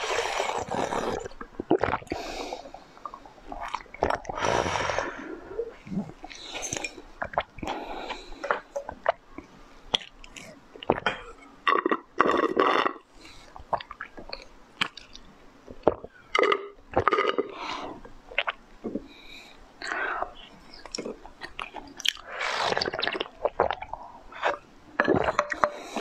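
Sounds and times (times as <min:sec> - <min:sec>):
chewing with wet clicks: 0:08.5 - 0:11.1, 0:13.6 - 0:17.4, 0:20.8 - 0:25.6.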